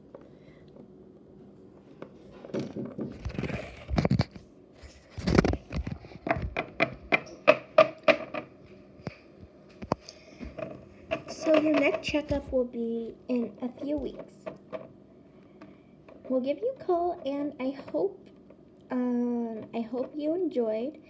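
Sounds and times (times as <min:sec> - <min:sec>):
plastic toy figures tapping: 0:06.3 - 0:08.5, 0:10.5 - 0:12.5.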